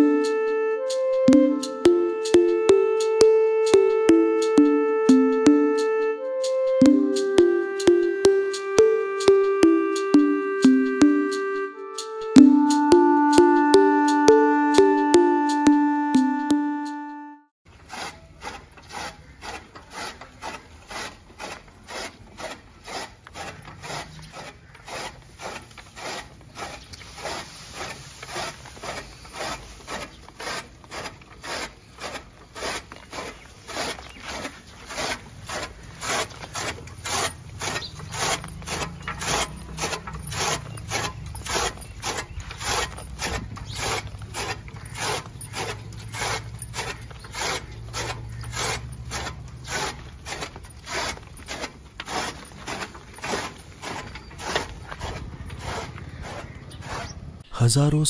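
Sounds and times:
chaff cutter blades chopping: 0:19.4 - 0:57.2.

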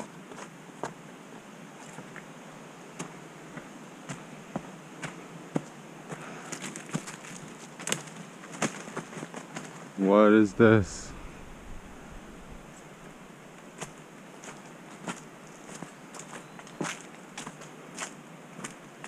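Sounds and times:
footsteps on dirt trail: 0:03.0 - 0:10.0, 0:11.0 - 0:18.8
faint hiss: 0:09.9 - 0:14.6.

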